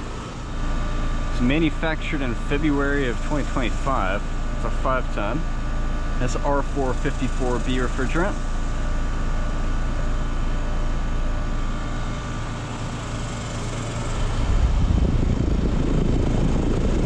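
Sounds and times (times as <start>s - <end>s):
air conditioner compressor hum: 0.0s - 17.0s
condenser fan rushing: 0.0s - 17.0s
wind buffeting microphone: 14.2s - 17.0s.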